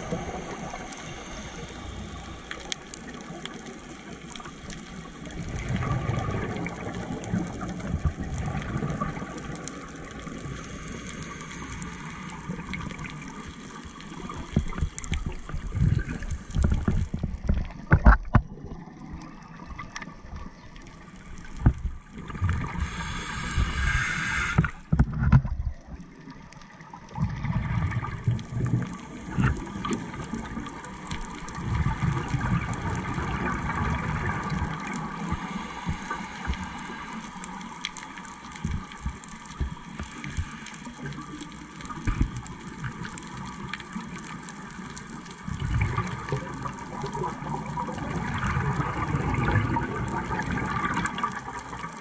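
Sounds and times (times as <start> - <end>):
regulator inhalation hiss: 0.0 - 3.1, 10.4 - 12.7, 22.6 - 25.0, 34.7 - 41.1
low rush of water: 0.0 - 3.6, 5.2 - 52.0
exhaled bubbles gurgling: 0.0 - 52.0.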